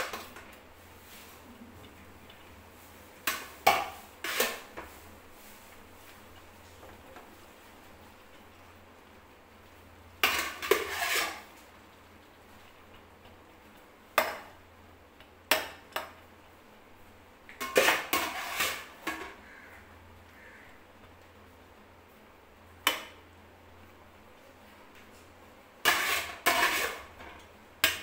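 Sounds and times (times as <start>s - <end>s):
spoon scraping metal pot: 3.2s - 4.7s, 10.2s - 11.6s, 17.6s - 19.4s, 25.8s - 27.2s.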